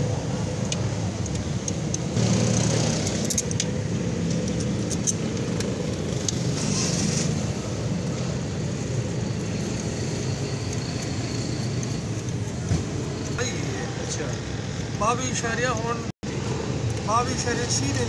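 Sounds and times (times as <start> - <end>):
vehicle engines humming: 0.0 - 18.0
metallic clicks and taps: 0.6 - 2.1, 3.0 - 6.4.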